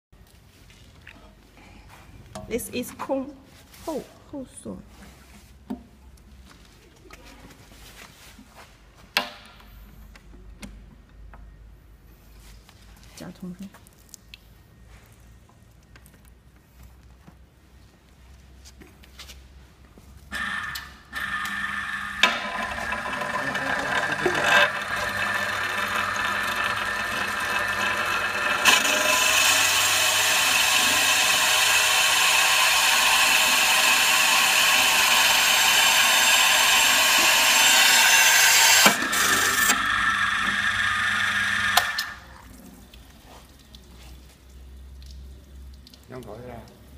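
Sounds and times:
drill bit grinding through glass: 20.4s - 42.3s.

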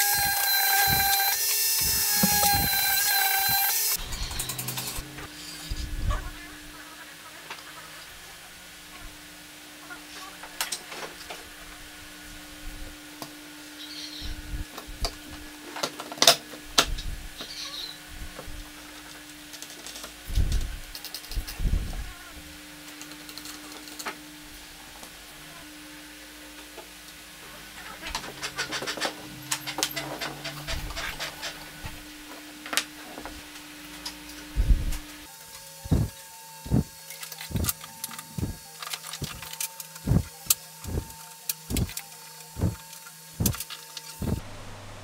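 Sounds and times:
faint steady hum: 0.0s - 45.0s
dull thump: 35.9s - 36.1s.

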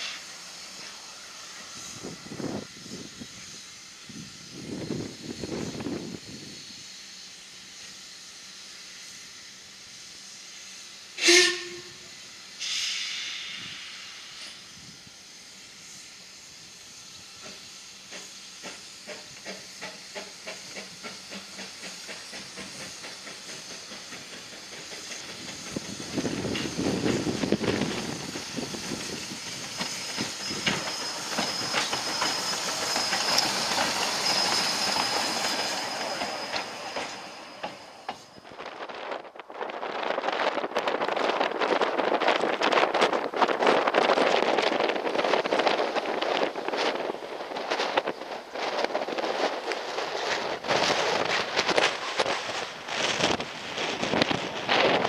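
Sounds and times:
steam locomotive beat: 0.0s - 38.4s
steam hissing: 0.0s - 55.0s
steam whistle toot: 11.1s - 13.8s
thin high squeal: 26.1s - 39.1s.

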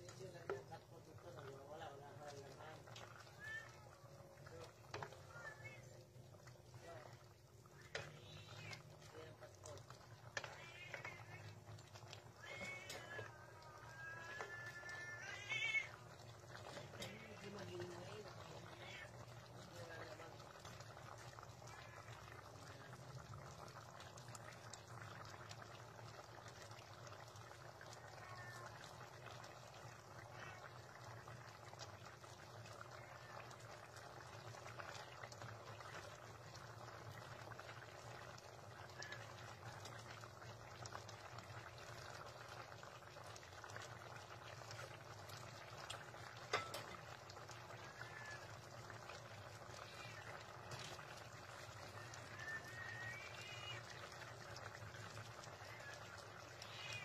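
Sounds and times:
stew bubbling and popping: 0.0s - 57.0s.

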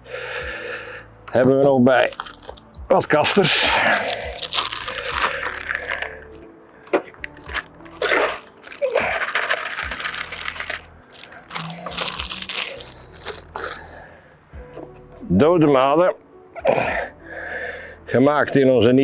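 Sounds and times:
plastic tubs rustling: 3.4s - 13.8s.

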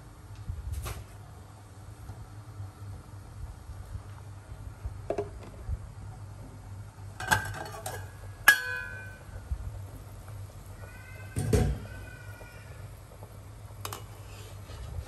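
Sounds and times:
pot lid clanging: 7.2s - 9.2s
pot lid clinking: 7.2s - 9.2s.

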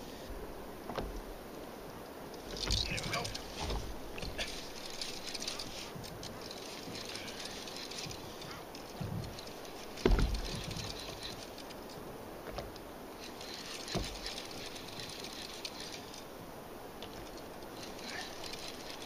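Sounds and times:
dull low thump: 3.6s - 4.4s, 10.0s - 10.7s
fishing reel ticking: 4.3s - 12.0s, 13.2s - 16.3s, 17.0s - 19.0s.

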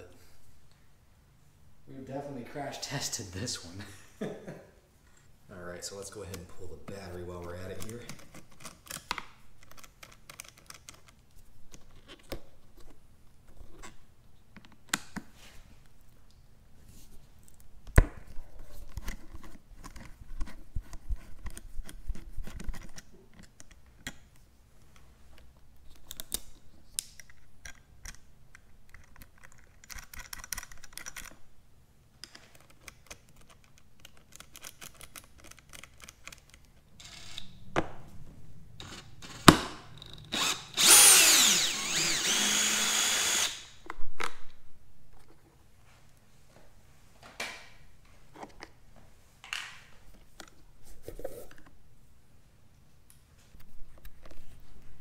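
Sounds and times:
screwdriver clicking and scraping metal: 38.8s - 43.6s.

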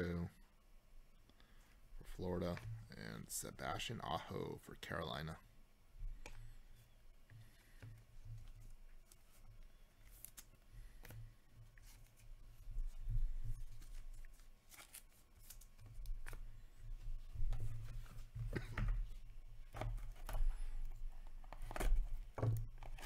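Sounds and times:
cards and sleeves sliding: 8.5s - 16.6s.

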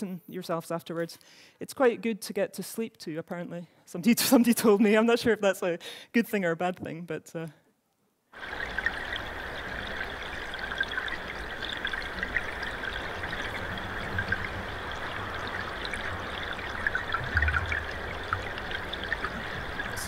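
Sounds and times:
river flowing: 8.4s - 20.0s.

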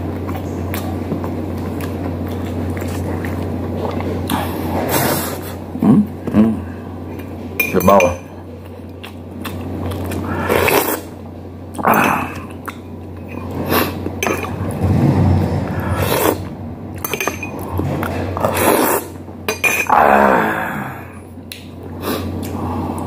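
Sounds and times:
chewing and lip-smacking: 0.0s - 5.6s, 8.4s - 14.8s, 21.4s - 23.0s
spoon clinking on a plate: 7.6s - 8.3s, 14.2s - 14.6s, 17.0s - 17.6s.

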